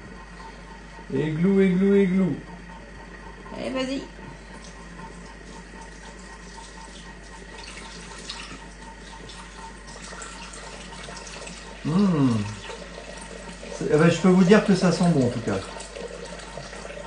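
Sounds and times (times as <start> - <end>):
wine pouring into metal bowl: 4.6 - 17.0.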